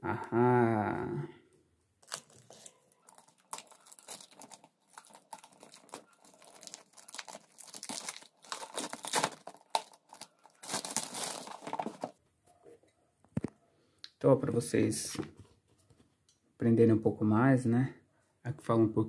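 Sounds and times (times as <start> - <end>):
plastic wrap crinkling: 2.0 - 12.2.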